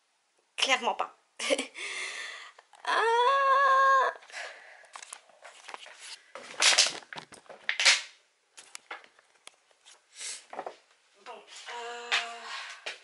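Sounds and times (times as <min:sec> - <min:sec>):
rustling and handling noises: 0:04.9 - 0:07.9, 0:08.5 - 0:13.0.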